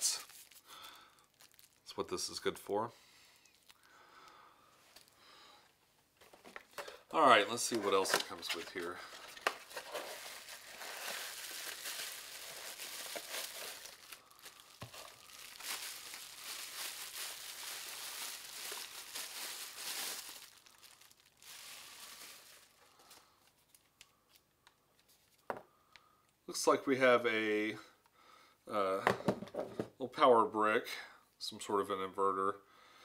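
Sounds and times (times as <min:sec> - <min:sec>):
bubble wrap crinkling: 0:00.0 - 0:02.6, 0:03.5 - 0:03.9, 0:07.6 - 0:25.4.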